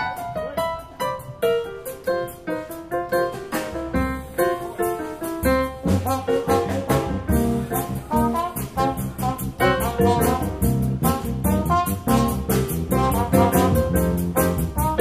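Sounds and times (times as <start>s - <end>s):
live band playing upbeat music: 0.0s - 15.0s
bass line: 5.4s - 15.0s.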